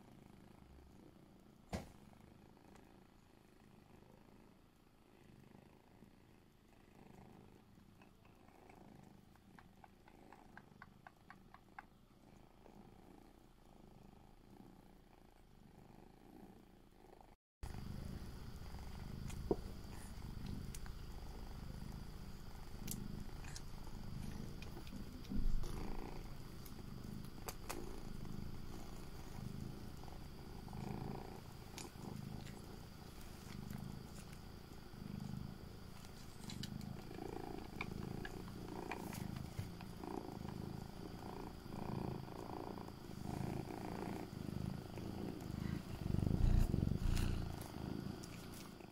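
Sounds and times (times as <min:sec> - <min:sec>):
cat purring: 0:00.0 - 0:48.9
brief knock: 0:01.7 - 0:01.9
faint clicks: 0:22.8 - 0:25.8.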